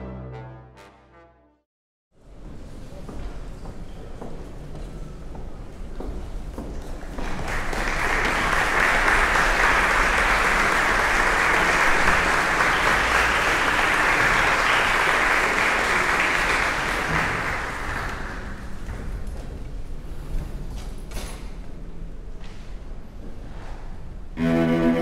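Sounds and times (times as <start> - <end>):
audience applauding: 7.2 - 18.9.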